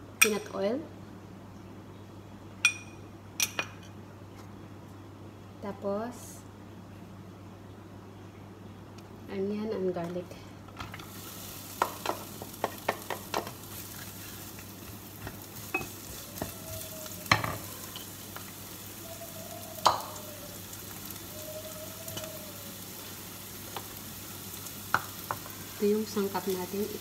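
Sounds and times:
onion and garlic sizzling in oil: 0:10.8 - 0:27.0
wooden spatula knocking on pan: 0:11.8 - 0:13.6.

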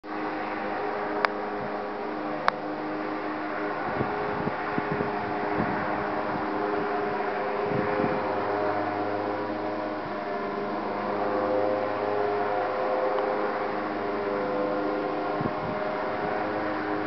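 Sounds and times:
distant traffic hum: 0:00.0 - 0:17.0
wind: 0:00.0 - 0:17.0
gusts buffeting microphone: 0:00.1 - 0:17.0.

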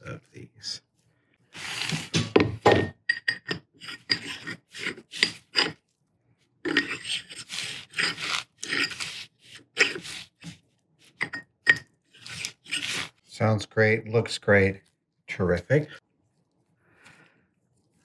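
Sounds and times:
brush scraping metal grooves: 0:06.6 - 0:11.2, 0:12.1 - 0:13.2.

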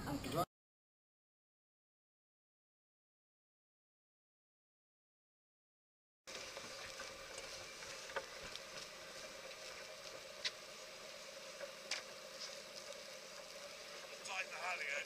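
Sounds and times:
yacht running hum with hiss: 0:06.3 - 0:15.0.

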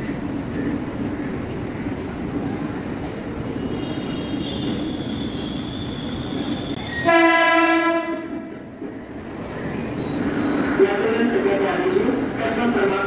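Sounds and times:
train wheels rumbling on tracks: 0:00.0 - 0:13.0
train horn: 0:03.6 - 0:08.4.

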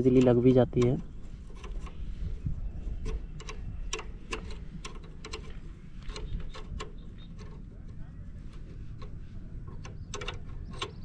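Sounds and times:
metal clicks of hand tool: 0:03.0 - 0:07.6, 0:09.0 - 0:11.0.

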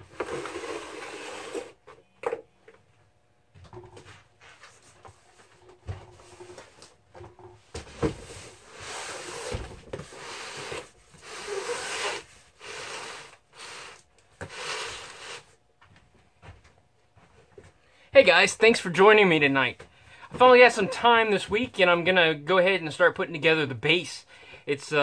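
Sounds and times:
box scraping across wood: 0:00.0 - 0:01.8, 0:08.2 - 0:15.5.

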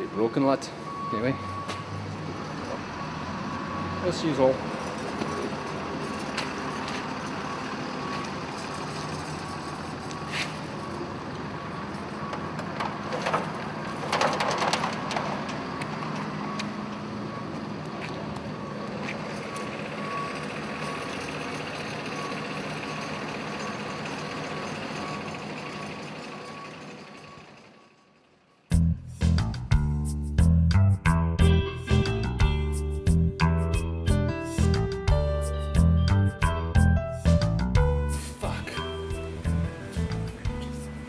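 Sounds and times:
reversing alarm beeping: 0:00.0 - 0:14.0, 0:15.0 - 0:28.6
vehicle engine running: 0:02.1 - 0:41.0
clattering: 0:14.0 - 0:15.5.

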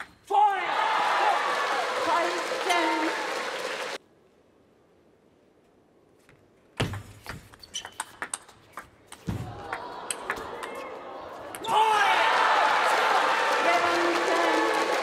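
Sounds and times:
crowd cheering and clapping: 0:00.5 - 0:04.0, 0:09.4 - 0:15.0.

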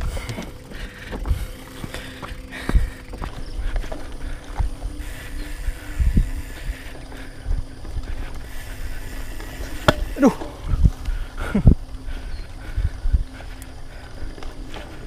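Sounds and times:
bike tyre rumble: 0:00.0 - 0:15.0
wind on microphone: 0:02.7 - 0:13.6.

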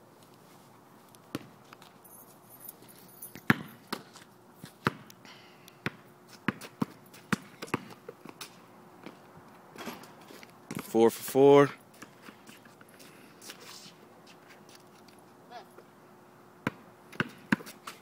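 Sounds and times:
basketball bouncing on hard court: 0:03.3 - 0:04.1, 0:04.8 - 0:05.1, 0:05.8 - 0:08.0, 0:16.6 - 0:17.8.

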